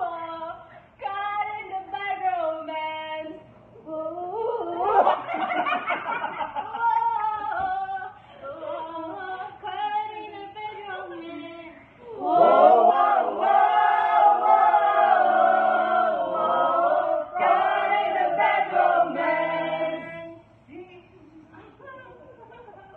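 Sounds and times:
group of people laughing: 0:04.8 - 0:07.4
voices singing notes: 0:12.1 - 0:20.5.

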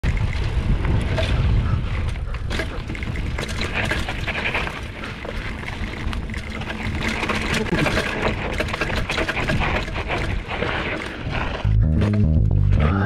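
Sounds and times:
wind buffeting microphone: 0:00.0 - 0:11.7
bike clicks and rattles: 0:00.0 - 0:12.3
tyres crunching on dirt: 0:02.6 - 0:13.0.

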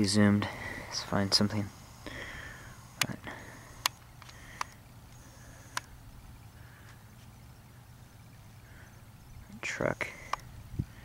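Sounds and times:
faint low hum: 0:00.0 - 0:11.0
camcorder handling clicks: 0:02.8 - 0:05.9.

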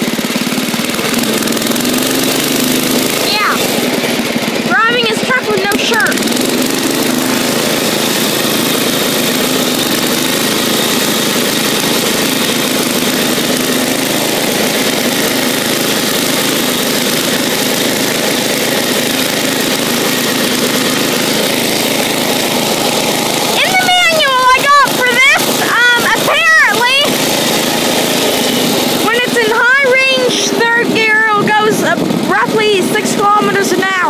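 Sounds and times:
garden tractor engine running: 0:00.0 - 0:34.0.

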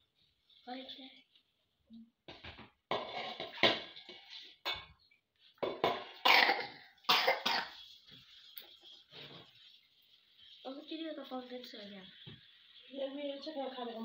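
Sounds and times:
person coughing: 0:06.2 - 0:07.8.

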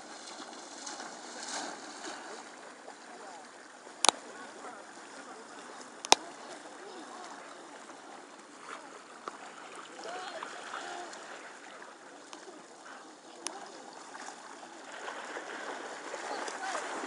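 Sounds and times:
sea water splashing and lapping: 0:00.0 - 0:17.0
sharp click: 0:06.0 - 0:06.2.

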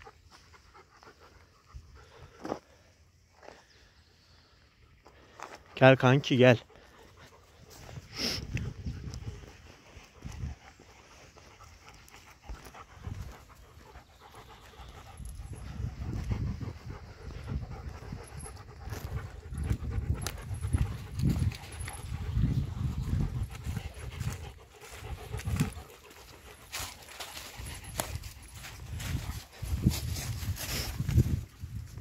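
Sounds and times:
dog panting: 0:00.0 - 0:02.9, 0:06.4 - 0:31.5
footsteps on dry leaves: 0:23.0 - 0:31.6.

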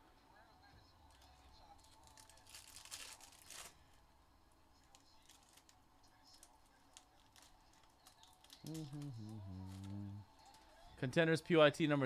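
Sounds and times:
foil crinkling: 0:01.7 - 0:04.0, 0:04.8 - 0:09.9
foil wrapper ripping: 0:01.8 - 0:03.9, 0:04.9 - 0:09.0.

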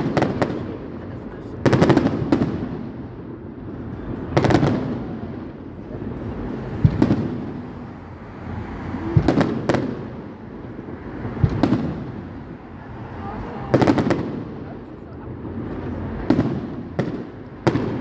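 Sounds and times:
rolling rumble of echo: 0:00.0 - 0:18.0.

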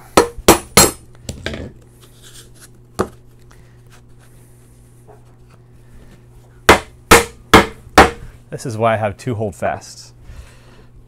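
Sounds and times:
sharp knock on workbench: 0:06.7 - 0:08.2.

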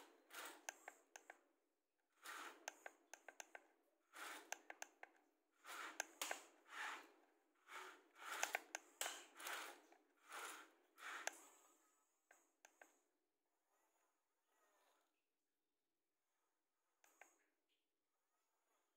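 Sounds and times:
toy bucket scraping through sand: 0:05.6 - 0:11.5.

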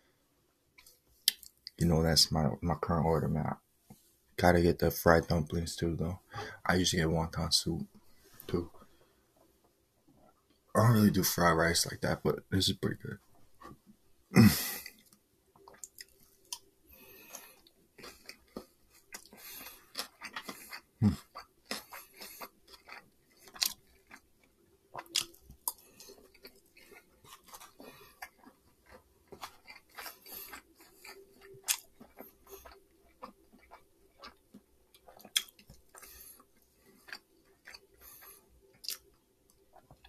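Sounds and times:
chewing food: 0:13.3 - 0:40.0.

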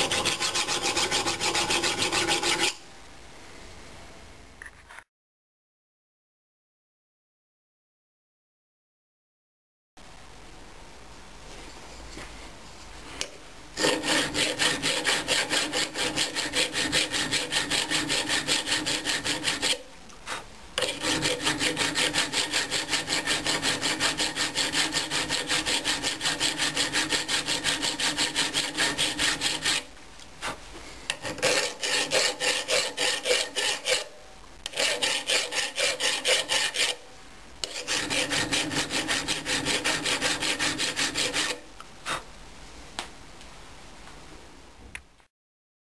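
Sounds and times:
file rasping on steel: 0:00.0 - 0:02.8, 0:13.8 - 0:37.0, 0:37.6 - 0:42.2.

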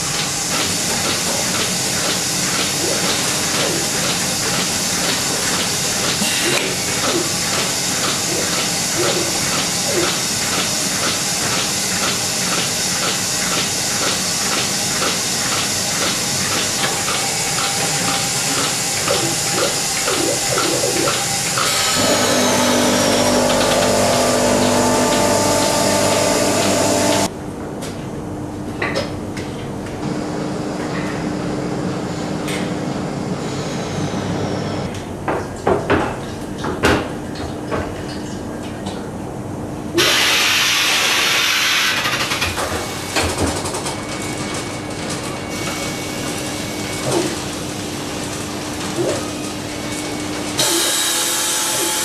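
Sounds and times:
steady motor tones: 0:16.0 - 0:27.3
milking machine air hiss pulsing: 0:40.0 - 0:42.2.

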